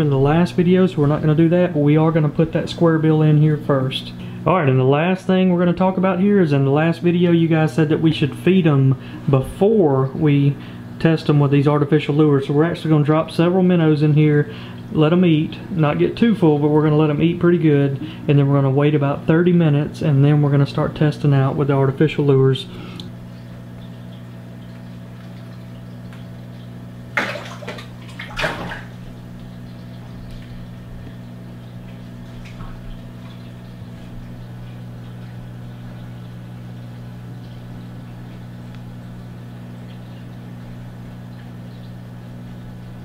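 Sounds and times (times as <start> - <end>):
aquarium equipment hum: 0.0 - 43.0
water moving in tank: 20.4 - 43.0
splashes at water surface: 27.1 - 29.0.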